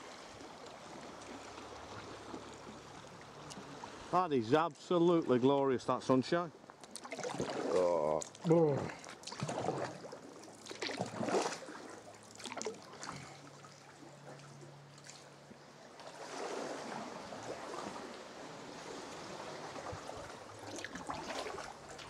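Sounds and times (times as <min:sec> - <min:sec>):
paddle splashing water: 0:00.0 - 0:22.0
water sloshing against rock: 0:06.6 - 0:22.0.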